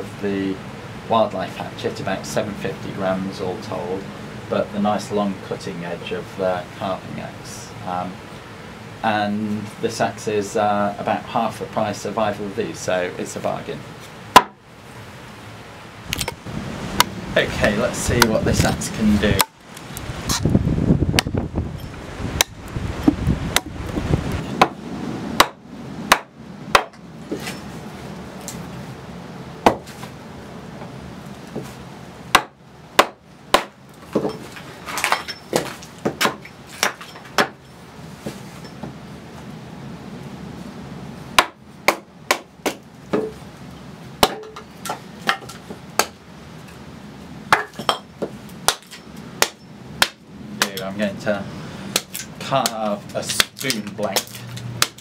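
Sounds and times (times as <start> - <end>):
axe chopping wood: 14.3 - 14.6, 24.6 - 24.8, 25.4 - 27.5, 29.6 - 30.0, 32.3 - 34.4, 35.0 - 37.6, 41.4 - 43.4, 44.2 - 46.2, 47.5 - 48.0, 48.7 - 50.8, 51.9 - 55.0.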